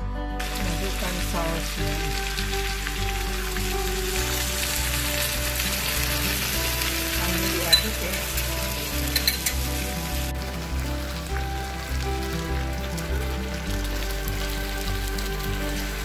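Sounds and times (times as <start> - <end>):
food sizzling in a frying pan: 0.4 - 16.0
utensil clinking against pan: 9.1 - 9.6.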